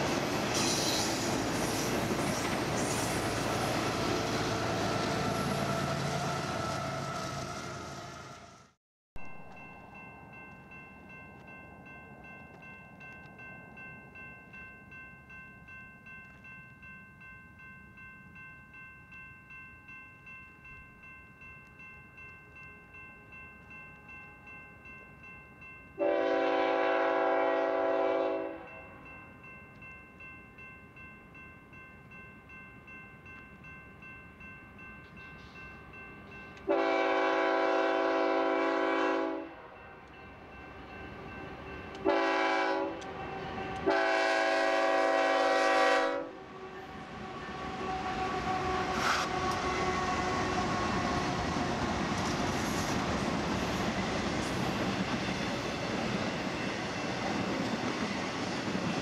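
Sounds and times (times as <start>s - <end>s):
crossing warning bell ringing: 9.2s - 59.0s
locomotive air horn blast: 26.0s - 28.7s, 36.7s - 39.7s, 42.0s - 43.0s, 43.8s - 51.4s.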